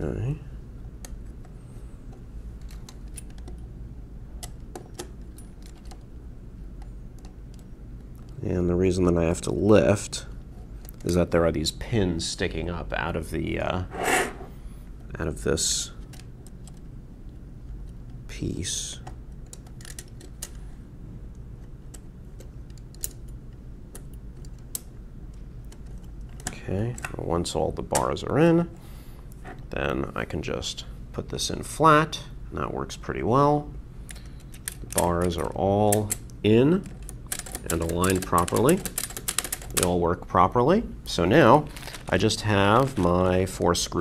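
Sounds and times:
low steady hum: 0.0 - 44.0
metal clicks of calculator keys: 36.8 - 39.9.

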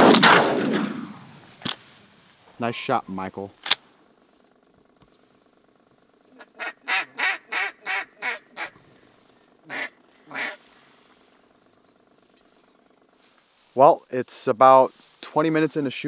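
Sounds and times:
duck quacking: 6.3 - 8.8, 9.7 - 10.7.

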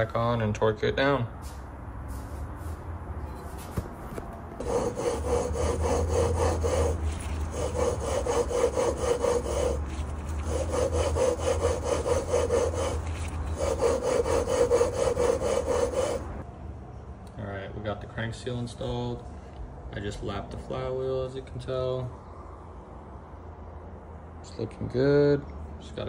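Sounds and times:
gritty rubbing of metal tapers: 4.6 - 16.4.

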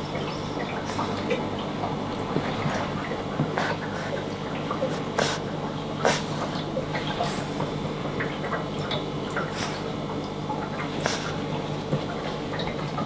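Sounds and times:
steady low hum: 0.0 - 13.0
puppy snuffling and sniffing: 4.8 - 6.4.

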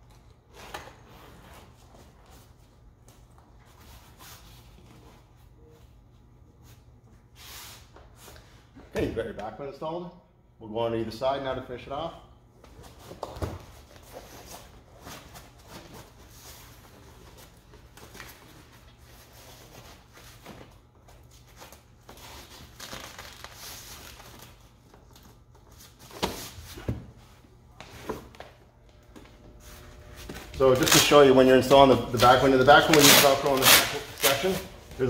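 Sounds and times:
vinyl cover rustling and crinkling: 19.8 - 26.5, 29.6 - 35.0.

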